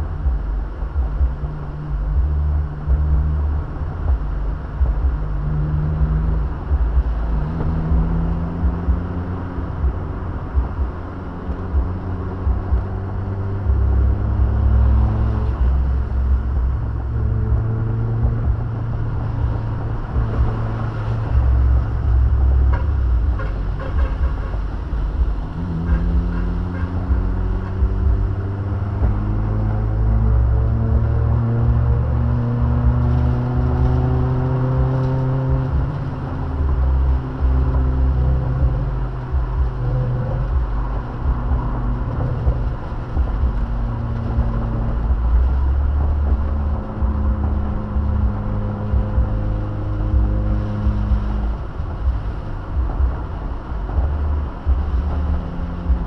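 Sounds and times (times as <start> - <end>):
car engine accelerating: 0.0 - 56.0.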